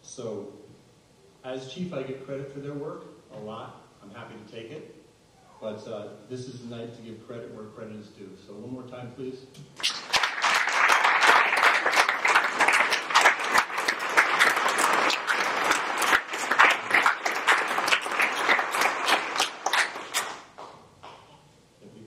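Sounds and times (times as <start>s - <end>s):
audience applause: 9.8s - 20.7s.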